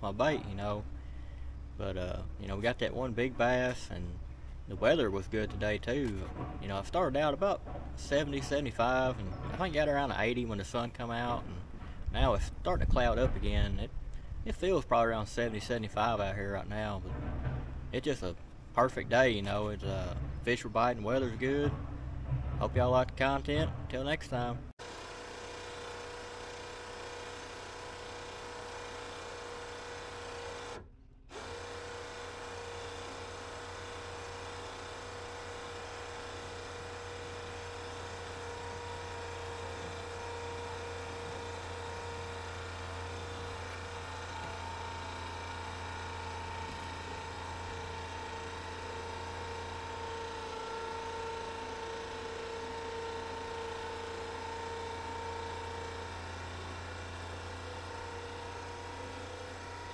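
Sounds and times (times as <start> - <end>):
electric winch motor whining: 0.0 - 12.6, 24.8 - 59.9.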